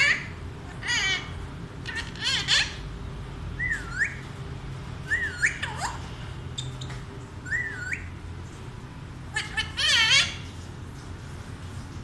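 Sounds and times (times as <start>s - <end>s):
parakeet whistling: 0.0s - 2.8s, 3.6s - 4.3s, 5.0s - 8.2s, 9.3s - 10.4s.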